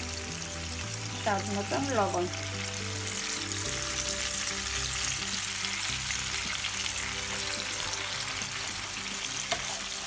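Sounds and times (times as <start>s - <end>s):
onions sizzling in a frying pan: 0.0s - 10.0s.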